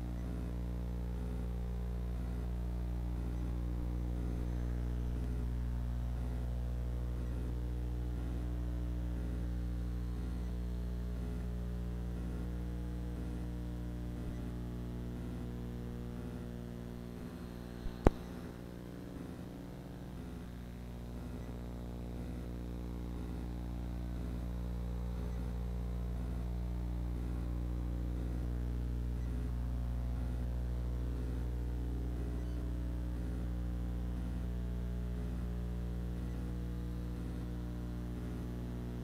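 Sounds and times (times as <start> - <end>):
low electrical hum: 0.0 - 39.0
sharp clicks: 17.2 - 18.6.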